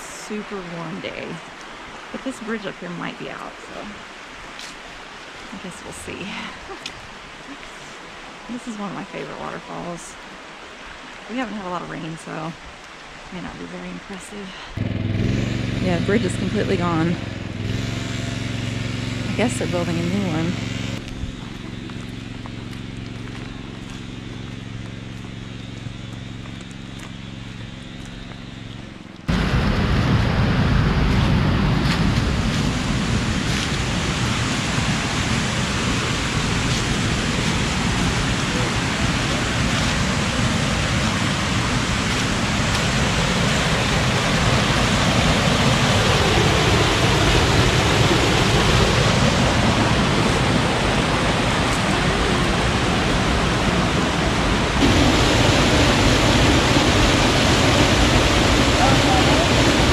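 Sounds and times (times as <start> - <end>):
rushing creek water: 0.0 - 14.8, 31.2 - 59.9.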